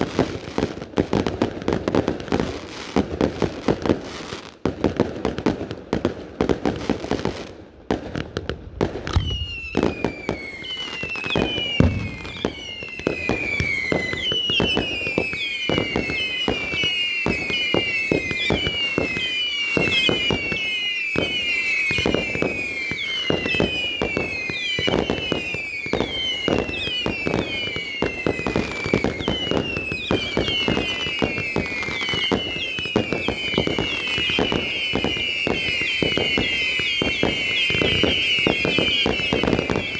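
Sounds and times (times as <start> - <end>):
firework bangs and crackles: 0.0 - 39.9
firework whistles falling in pitch: 8.9 - 39.9.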